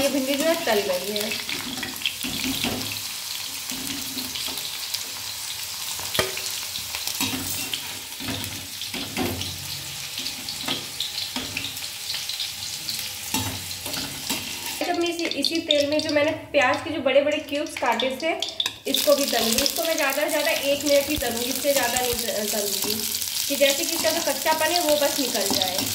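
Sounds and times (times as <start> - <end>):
okra sizzling in hot oil: 0.0 - 25.9
spatula scraping and knocking pan: 25.2 - 25.9.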